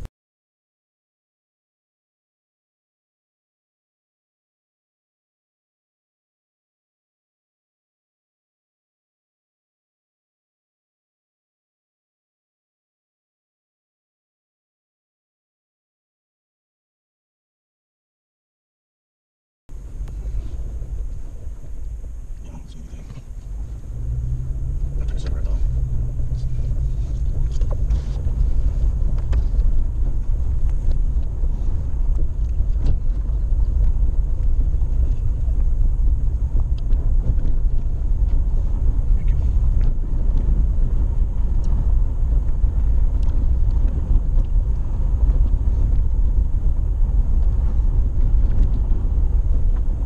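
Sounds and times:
engine and drivetrain rumble: 19.7 - 50.0
tyre noise: 19.7 - 50.0.

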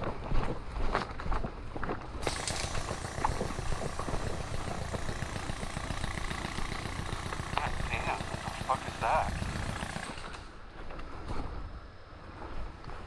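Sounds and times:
rapid automatic airsoft fire: 2.2 - 10.5.

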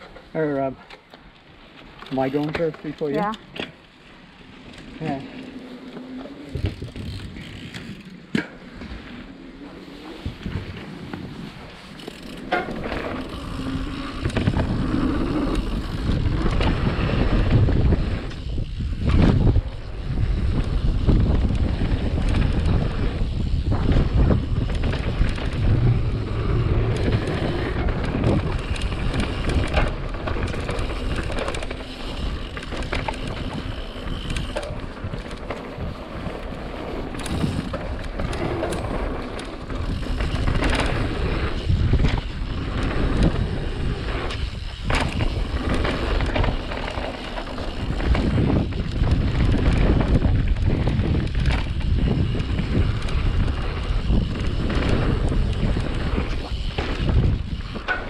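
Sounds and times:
wind buffeting microphone: 6.4 - 8.1, 12.4 - 58.0
bike rattling and knocking: 6.5 - 8.6, 11.9 - 58.0
tyres rumbling on dirt: 19.0 - 58.0.

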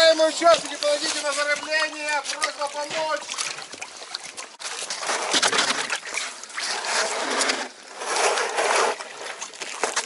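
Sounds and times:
water sloshing in plastic barrel: 0.0 - 10.0.

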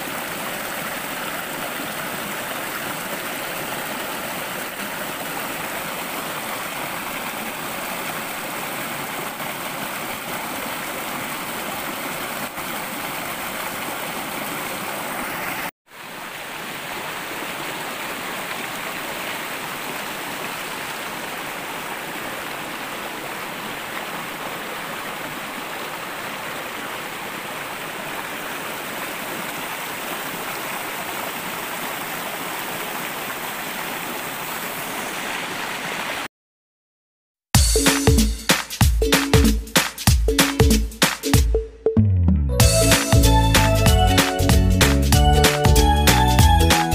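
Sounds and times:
stream rushing over rocks: 0.0 - 36.3.

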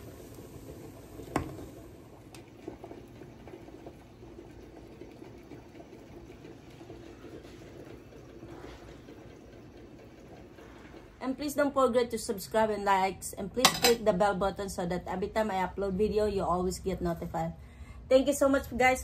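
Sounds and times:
soup bubbling in a pan: 0.0 - 11.7.

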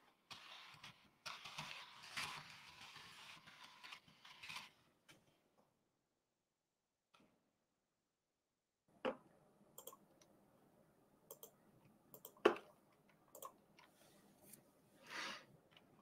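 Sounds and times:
mouse and keyboard clicks: 11.3 - 12.7.

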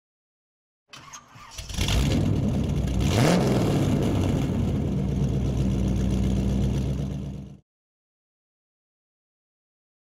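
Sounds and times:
engine-like hum: 1.0 - 7.6.

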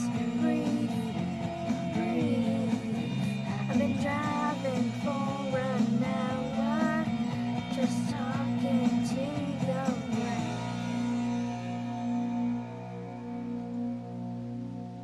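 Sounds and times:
person singing: 0.0 - 10.8
pop-rock music with guitar: 0.0 - 15.0.

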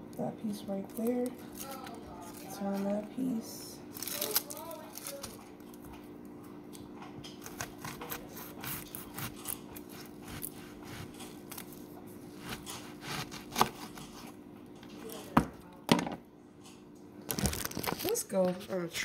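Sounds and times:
fingers peeling onion skin: 7.4 - 11.8, 12.4 - 14.2.

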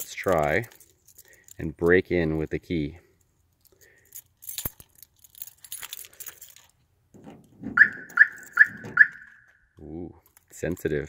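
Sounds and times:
keys jangling: 0.0 - 1.7, 3.1 - 9.6
key working car door lock: 7.2 - 9.5
car alarm short high beeps: 7.8 - 9.7.

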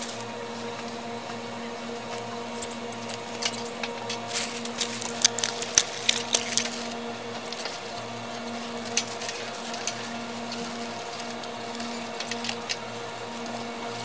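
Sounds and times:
handling clicks and rustles: 0.0 - 14.0
low electrical hum: 0.0 - 14.0.

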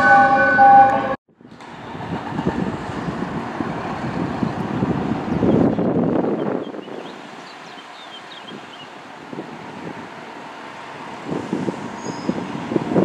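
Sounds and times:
fire engine horn: 0.0 - 1.2
vehicle noise: 0.0 - 13.0
wind on the microphone: 1.4 - 7.5, 8.3 - 10.2, 10.9 - 13.0.

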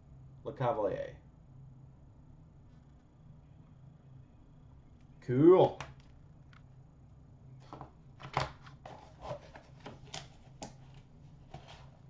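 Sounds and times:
cards and card holders handled: 7.6 - 12.0.

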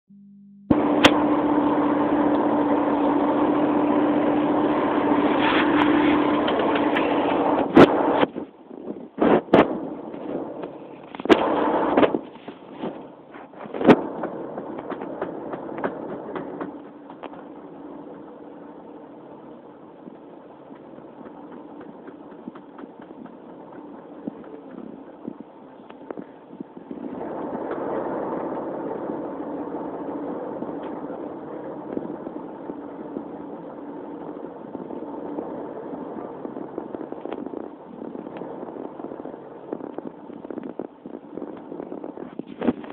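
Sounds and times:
bus engine rumble: 0.7 - 42.9
faint clicks and rattles: 20.0 - 27.9.

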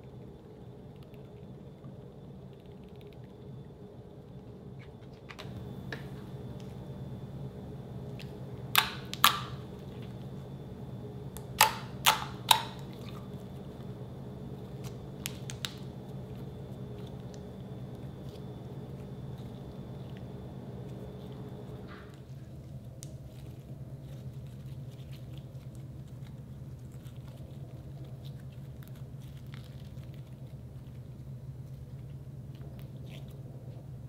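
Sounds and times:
steady low hum: 0.0 - 34.0
slime squelching: 11.3 - 33.9.

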